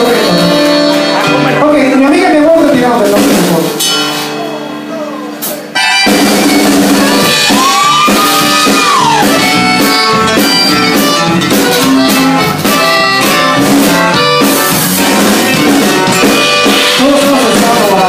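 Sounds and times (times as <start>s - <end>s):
accordion: 0.0s - 2.2s, 5.7s - 18.0s
drums: 0.0s - 18.0s
guitar: 0.0s - 18.0s
congas: 5.8s - 18.0s.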